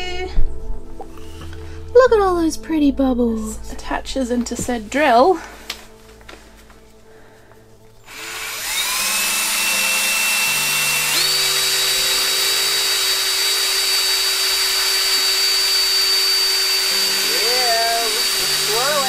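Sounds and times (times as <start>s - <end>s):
cordless drill whirring: 8.1s - 19.0s.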